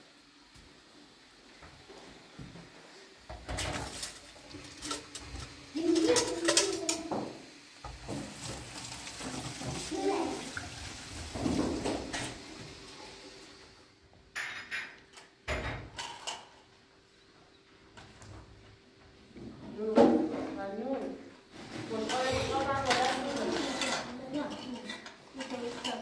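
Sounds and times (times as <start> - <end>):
tap water running into sink: 3.3 - 13.6
dishes clinking and knocking: 11.3 - 12.5, 14.3 - 16.6.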